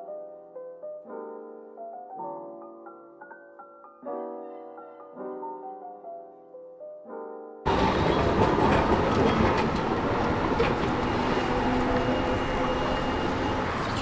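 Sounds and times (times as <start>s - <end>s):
piano music: 0.0s - 14.0s
loud outdoor rumble: 7.7s - 14.0s.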